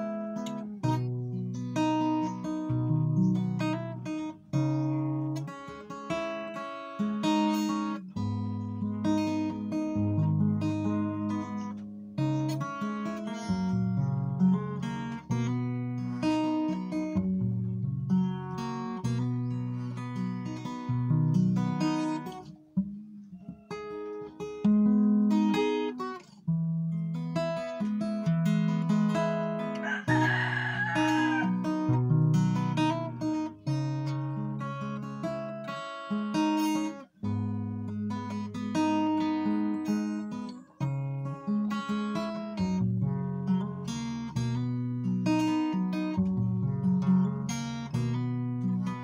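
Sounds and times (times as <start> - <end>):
acoustic guitar chords: 0.0 - 49.0.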